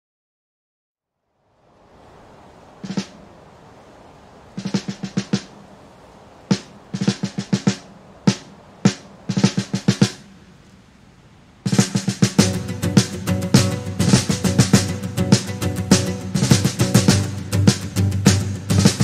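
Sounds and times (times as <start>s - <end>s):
snare drum rapid strokes: 2.8s - 3.2s, 4.6s - 5.6s, 6.5s - 10.3s, 11.7s - 19.0s
music: 6.5s - 10.2s, 11.7s - 19.0s.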